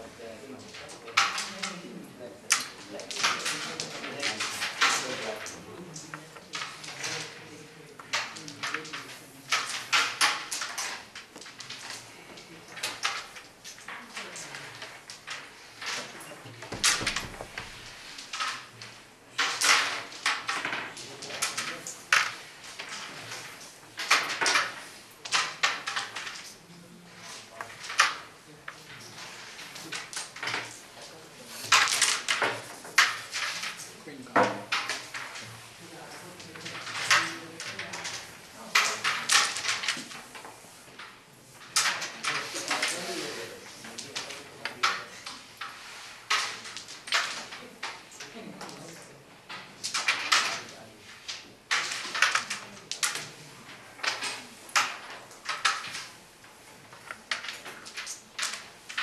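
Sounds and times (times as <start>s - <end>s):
carrom striker knocking on board: 16.7s - 18.0s.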